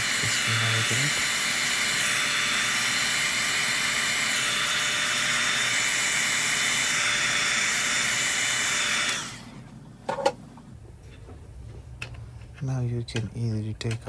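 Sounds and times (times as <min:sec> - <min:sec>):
heat gun blowing hot air: 0:00.0 - 0:09.6.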